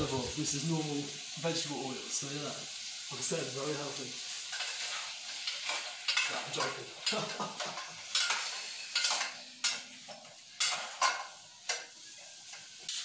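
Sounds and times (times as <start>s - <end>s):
food sizzling in oil: 0.0s - 13.0s.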